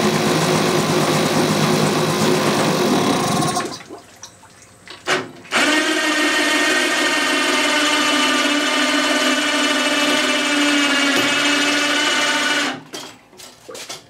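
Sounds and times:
outboard motor running: 0.0s - 3.7s.

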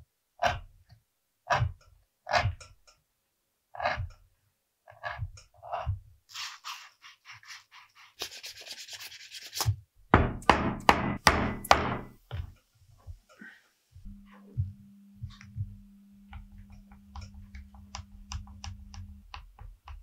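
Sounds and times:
knife shaving leather: 4.9s - 9.7s.

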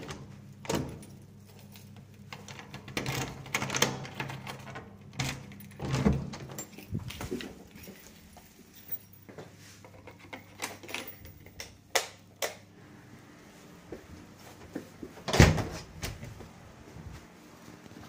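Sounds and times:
door shutting with thud: 15.3s - 16.2s.

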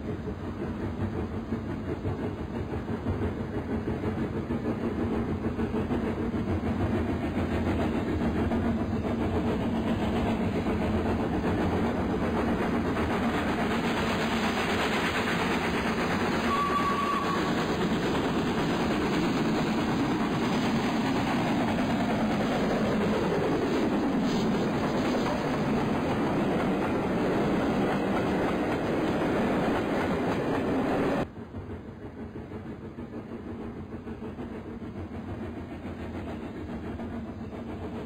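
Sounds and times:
rail clatter: 0.0s - 38.0s
steam train rumbling past: 0.0s - 38.0s
brief high tone: 16.5s - 17.4s.

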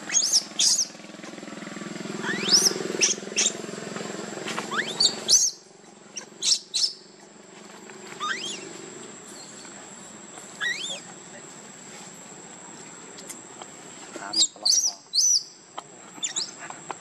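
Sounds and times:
baby monkey squealing: 0.0s - 1.0s, 2.2s - 3.6s, 4.6s - 7.2s, 8.2s - 8.7s, 10.6s - 11.1s, 14.3s - 15.6s, 16.2s - 16.7s
steady low hum: 0.0s - 17.0s.

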